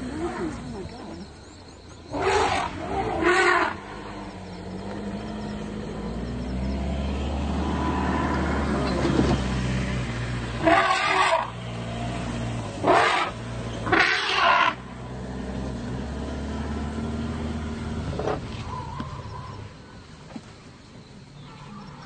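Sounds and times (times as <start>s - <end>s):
vehicle engine running: 0.0s - 22.0s
loud animal calls: 10.6s - 11.6s, 12.8s - 14.8s.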